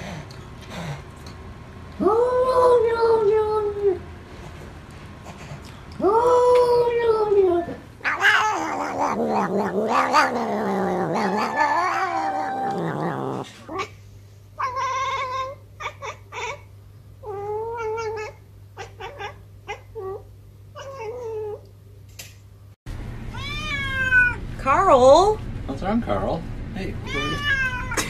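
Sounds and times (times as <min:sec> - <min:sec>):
cat yowling meow: 0:08.0 - 0:13.9, 0:23.3 - 0:24.4, 0:27.1 - 0:28.0.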